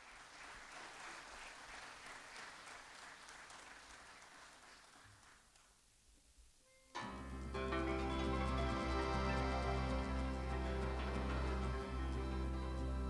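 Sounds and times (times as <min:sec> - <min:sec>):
quiet audience applause: 0:00.0 - 0:05.9.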